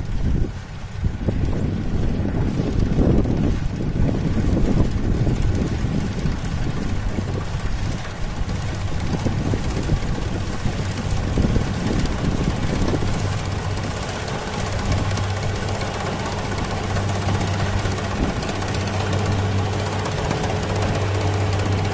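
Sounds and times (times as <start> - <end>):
combine harvester engine drone: 0.0 - 21.9.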